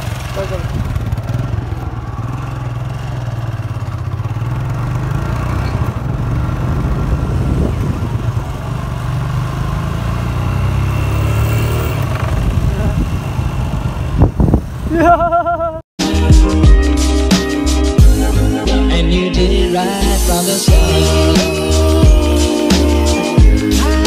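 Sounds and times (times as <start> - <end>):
motorcycle engine droning: 0.0 - 15.8.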